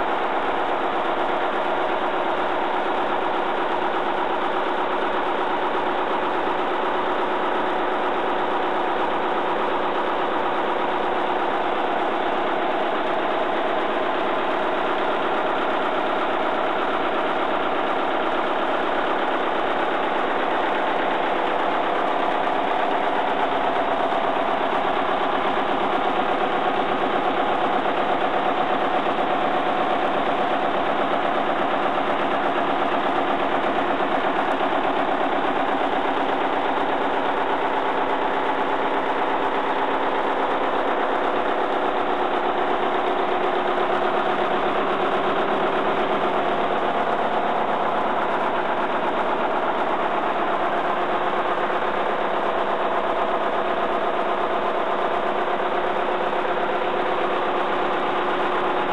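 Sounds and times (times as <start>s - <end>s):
diesel generator running: 0.0s - 58.9s.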